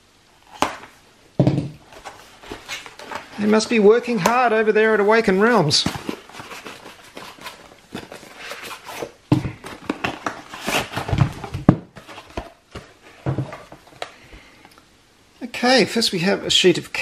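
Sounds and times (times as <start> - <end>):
items knocking on table: 1.4 - 1.8
cardboard and paper rustling: 1.8 - 14.1.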